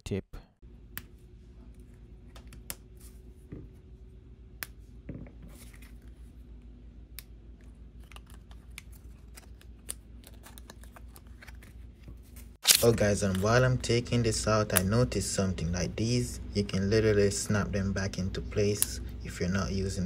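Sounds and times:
card packaging rustling: 0:08.0 - 0:13.7.

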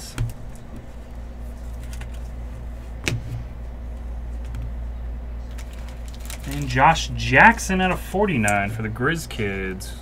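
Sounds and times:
trading cards handling: 0:00.0 - 0:04.8, 0:05.4 - 0:06.9
low room hum: 0:00.0 - 0:10.0.

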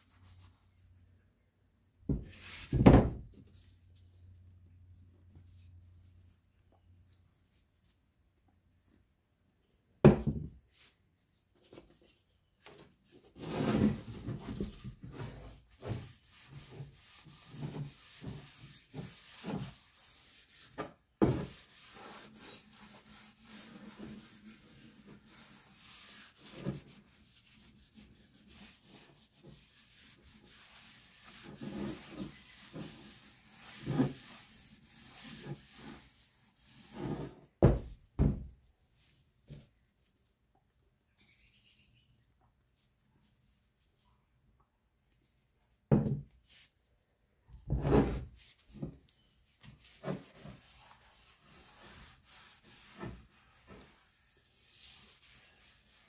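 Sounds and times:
paper towel wiping wood: 0:13.3 - 0:37.3, 0:49.6 - 0:56.0.

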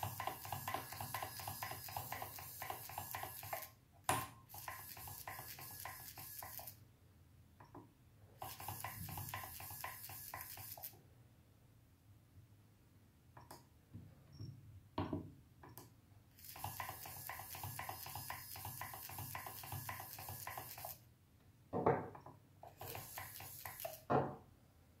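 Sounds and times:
servo buzzing: 0:04.5 - 0:06.8, 0:08.4 - 0:11.0, 0:16.4 - 0:21.0, 0:22.7 - 0:24.1
knock on wooden desk: 0:15.0 - 0:15.3, 0:21.7 - 0:22.2, 0:24.1 - 0:24.4.

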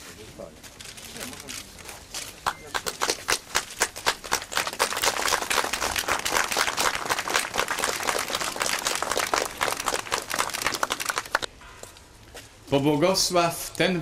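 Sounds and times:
crowd applauding: 0:02.4 - 0:11.5.

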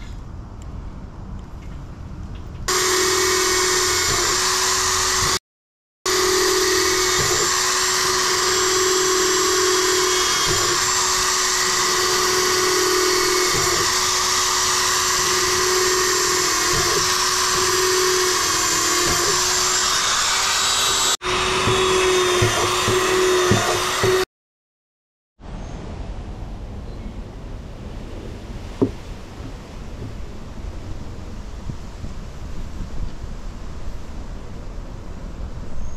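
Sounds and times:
electric drill boring plastic: 0:02.7 - 0:05.4, 0:06.1 - 0:24.3.

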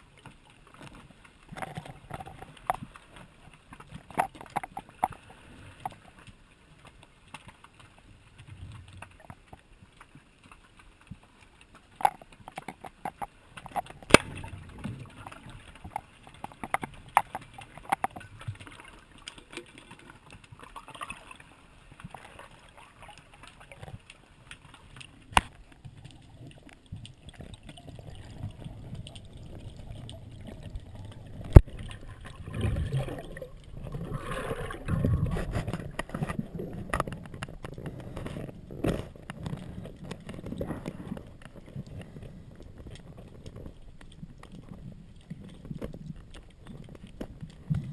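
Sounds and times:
churning water: 0:00.0 - 0:47.9
low water rumble: 0:00.0 - 0:47.9
sharp underwater clicks and knocks: 0:00.0 - 0:47.9.

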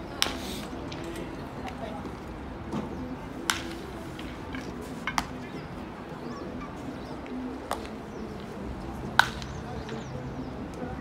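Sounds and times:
bats cracking baseballs: 0:00.1 - 0:05.8, 0:07.2 - 0:10.9
distant voices calling: 0:02.8 - 0:11.0.

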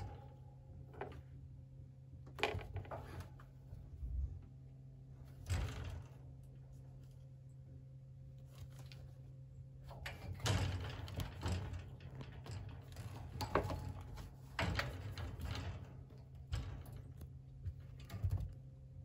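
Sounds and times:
wire playpen rattling: 0:09.8 - 0:19.0.

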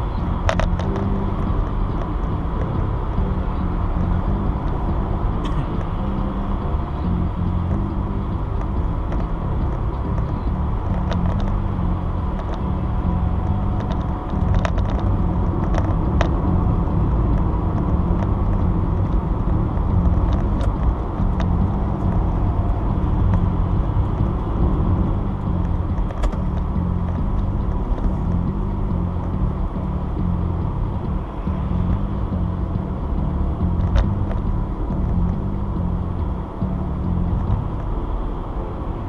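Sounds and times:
car driving at highway speed: 0:00.0 - 0:39.0.

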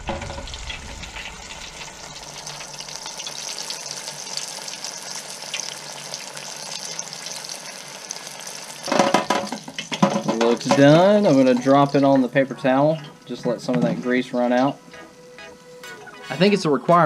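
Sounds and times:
fish frying in hot oil: 0:00.0 - 0:13.3.

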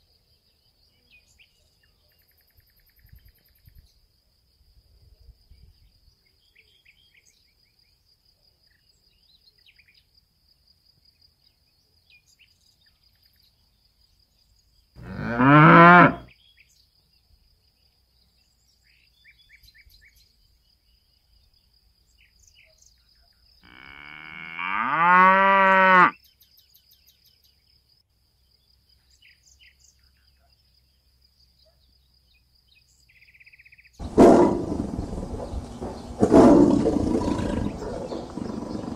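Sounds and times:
cattle mooing: 0:15.0 - 0:16.3, 0:23.7 - 0:26.1, 0:34.0 - 0:38.9
loud rough sound: 0:34.0 - 0:38.9.

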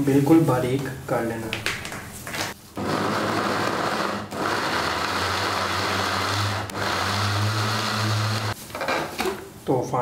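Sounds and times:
electric food chopper running: 0:02.8 - 0:08.6.

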